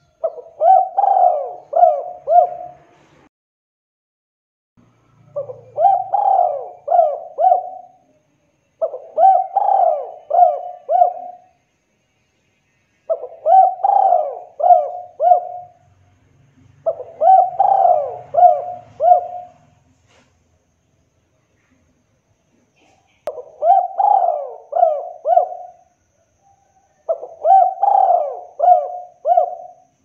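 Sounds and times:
dove cooing: 0:00.0 - 0:03.0, 0:05.3 - 0:08.0, 0:08.8 - 0:11.5, 0:13.1 - 0:15.8, 0:16.8 - 0:19.8, 0:23.3 - 0:30.0.

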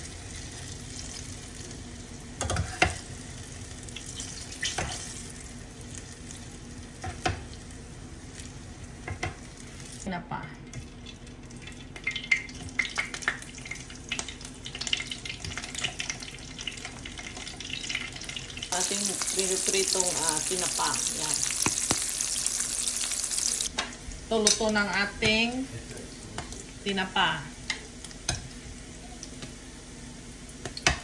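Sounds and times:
hot oil sizzling in a frying pan: 0:00.0 - 0:10.1, 0:10.9 - 0:31.0
oil crackling and spattering: 0:18.7 - 0:23.7.

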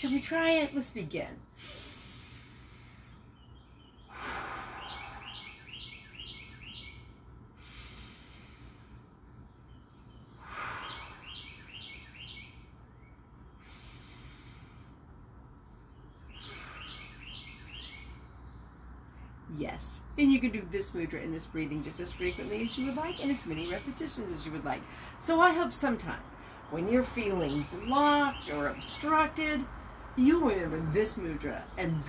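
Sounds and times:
bird chirping: 0:00.0 - 0:07.3, 0:08.0 - 0:32.0
slow human breathing: 0:01.6 - 0:03.3, 0:04.1 - 0:05.6, 0:07.5 - 0:09.3, 0:10.4 - 0:11.5, 0:13.6 - 0:15.3, 0:16.4 - 0:17.2.

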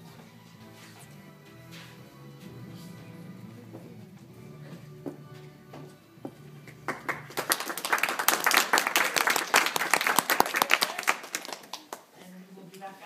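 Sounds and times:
recital music: 0:00.0 - 0:10.0
audience clapping: 0:06.6 - 0:12.1.

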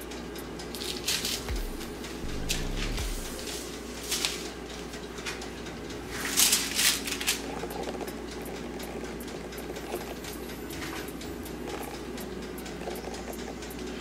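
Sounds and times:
steady low hum: 0:00.0 - 0:14.0
aluminium foil rustling: 0:03.4 - 0:04.5, 0:06.1 - 0:07.5.

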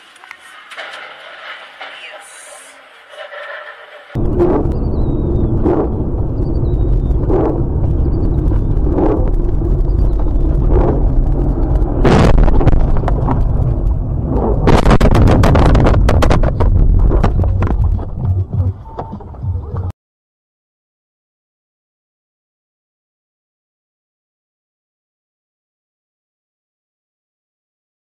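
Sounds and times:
crashing and cracking clatter: 0:00.0 - 0:02.2, 0:08.4 - 0:18.6
loud continuous rumble: 0:00.0 - 0:19.9
heavy impact: 0:04.2 - 0:18.8.

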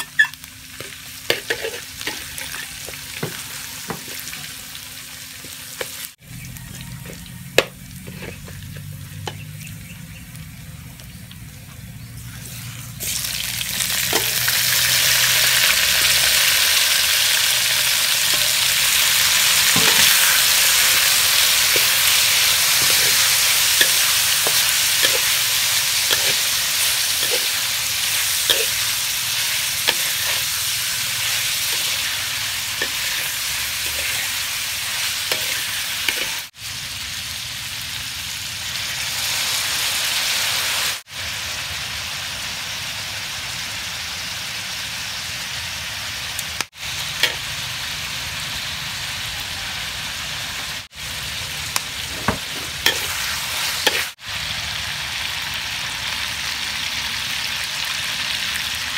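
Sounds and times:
metal spatula scraping wok: 0:00.0 - 0:04.4, 0:06.7 - 0:09.6, 0:13.9 - 0:36.5, 0:51.9 - 0:54.2
meat sizzling in hot oil: 0:00.0 - 0:11.3, 0:12.0 - 0:58.9.

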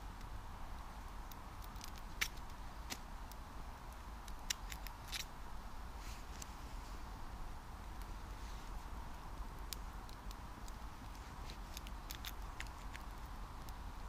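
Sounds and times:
campfire crackling: 0:00.0 - 0:14.0
low steady rumble: 0:00.0 - 0:14.0
fire pops and snaps: 0:01.0 - 0:05.3, 0:09.1 - 0:13.8.

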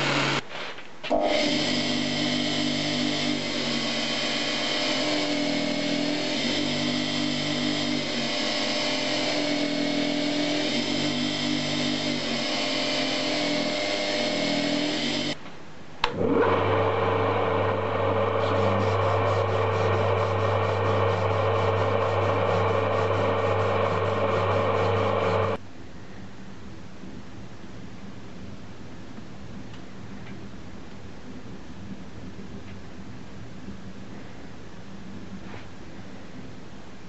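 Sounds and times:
grinder grinding knife blade: 0:00.0 - 0:00.4, 0:01.1 - 0:15.4, 0:16.4 - 0:25.6
sanding jig motor hum: 0:00.0 - 0:00.4, 0:01.1 - 0:15.4, 0:16.1 - 0:25.6.

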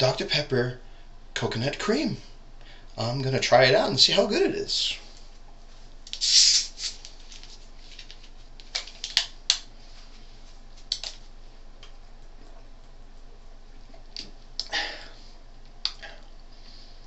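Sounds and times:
soda bottle fizzing hiss: 0:06.2 - 0:07.0.

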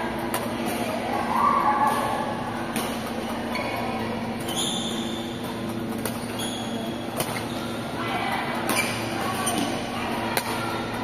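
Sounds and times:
steady low hum: 0:00.0 - 0:11.0
high squeak: 0:04.4 - 0:05.3, 0:06.3 - 0:07.7.

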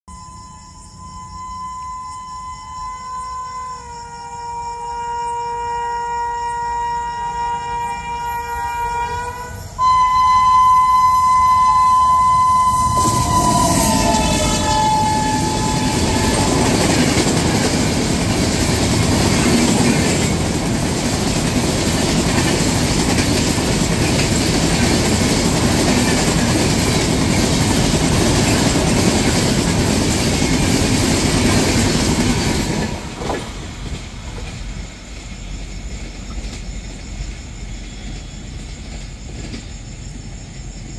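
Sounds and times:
locomotive horn chord: 0:00.7 - 0:17.0
train coaches rumbling and clattering: 0:05.9 - 0:40.9.

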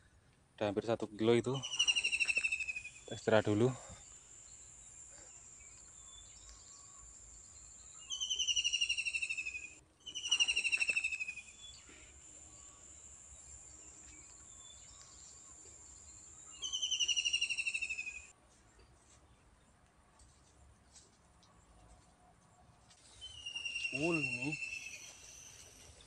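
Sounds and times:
bird call falling trill: 0:01.6 - 0:03.1, 0:08.1 - 0:11.6, 0:23.2 - 0:25.2
high insect drone: 0:08.7 - 0:14.3.

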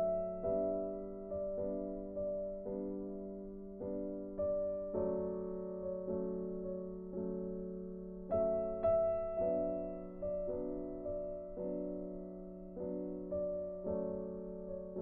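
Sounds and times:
slow soft piano chords: 0:00.0 - 0:15.0.

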